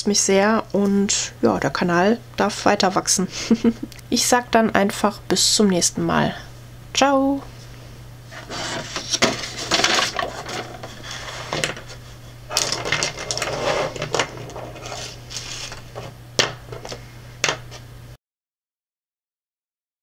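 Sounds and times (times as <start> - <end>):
steady low hum: 0.0 - 18.2
paper pages rustling: 8.3 - 16.2
objects knocking on table: 16.0 - 17.6.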